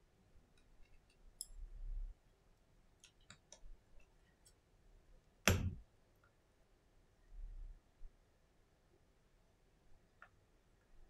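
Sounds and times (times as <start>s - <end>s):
tweezers clicking on small parts: 0.6s - 1.6s.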